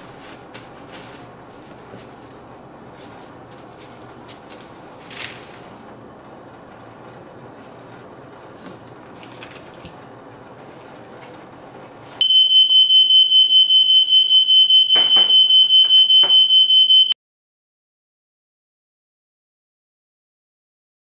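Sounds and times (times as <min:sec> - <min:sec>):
low kitchen hum: 0:00.0 - 0:17.2
smoke alarm beeping: 0:12.2 - 0:17.2.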